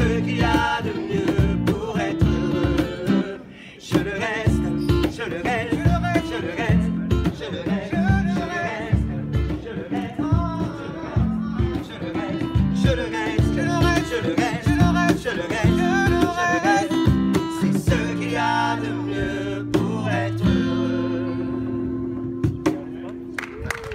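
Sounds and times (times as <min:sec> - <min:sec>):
sharp drum beats: 0:00.0 - 0:03.1, 0:03.9 - 0:18.4
acoustic guitar strumming: 0:00.0 - 0:23.3.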